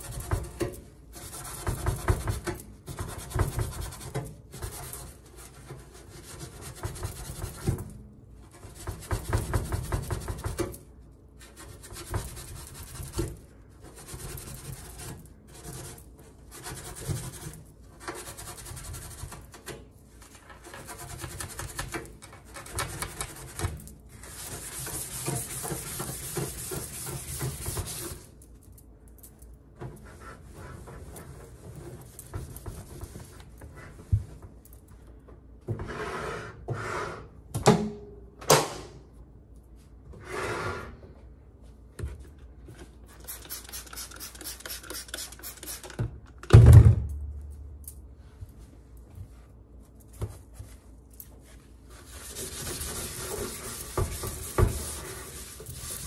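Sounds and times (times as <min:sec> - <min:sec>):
hand rubbing metal panel: 0:24.3 - 0:28.3, 0:52.1 - 0:56.0.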